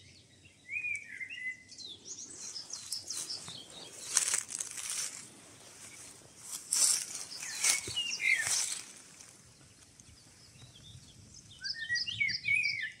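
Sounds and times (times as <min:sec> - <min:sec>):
songbird chirping: 0:00.0 - 0:13.0
footsteps crunching dry leaves: 0:02.3 - 0:10.0.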